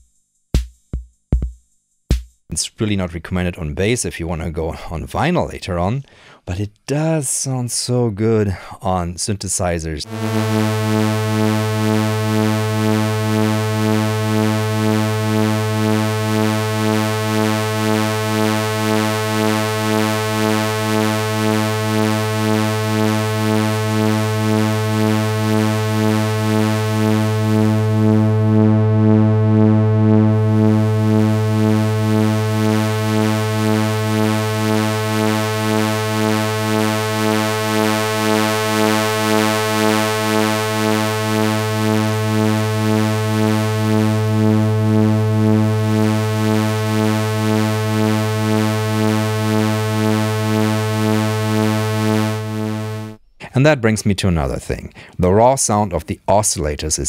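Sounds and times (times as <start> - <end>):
low buzzy synthesizer drone: 10.0 - 53.2.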